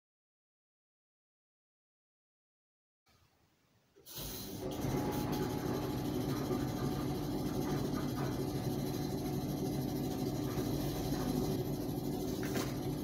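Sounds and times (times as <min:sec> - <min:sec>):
washing machine motor humming: 0:04.1 - 0:13.0.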